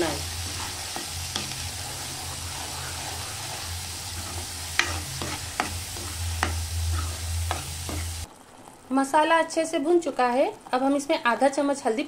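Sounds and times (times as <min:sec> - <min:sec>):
spoon scraping the pan: 0:00.0 - 0:08.3
masala sizzling in oil: 0:00.0 - 0:12.0
spoon knocking on pan: 0:00.3 - 0:08.2.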